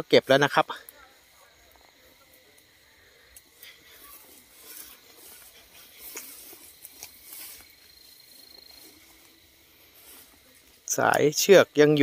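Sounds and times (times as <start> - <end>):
tall grass rustling and crackling: 0.0 - 12.0
stems snapping: 3.3 - 7.8.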